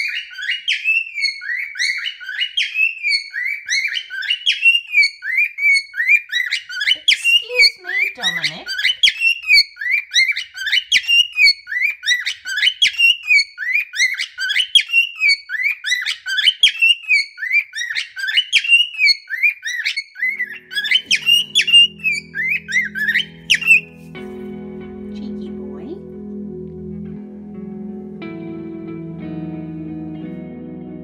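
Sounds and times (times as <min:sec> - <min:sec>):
cockatiel whistling: 0:00.0 - 0:24.1.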